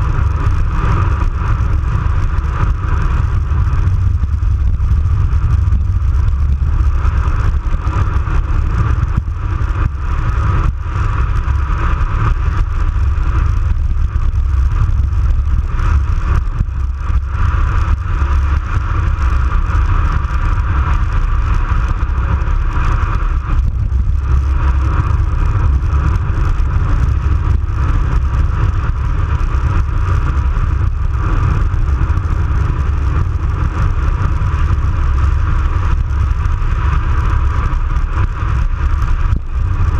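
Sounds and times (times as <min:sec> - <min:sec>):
bicycle tyres rolling on asphalt: 0:00.0 - 0:39.9
wind buffeting microphone: 0:00.0 - 0:39.9.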